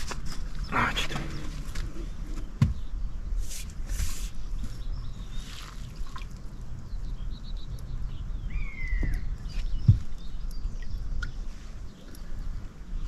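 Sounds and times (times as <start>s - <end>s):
bird chirp: 0.0s - 13.0s
dull thump: 2.6s - 2.9s
water drips and splashes: 4.4s - 13.0s.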